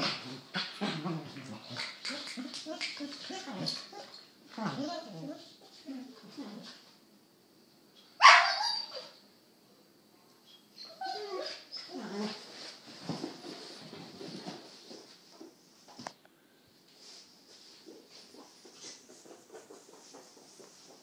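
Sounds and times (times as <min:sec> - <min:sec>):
dogs yipping: 0:08.0 - 0:09.2, 0:10.5 - 0:12.0
dog barking: 0:08.2 - 0:08.8
dogs scuffling: 0:11.9 - 0:16.1.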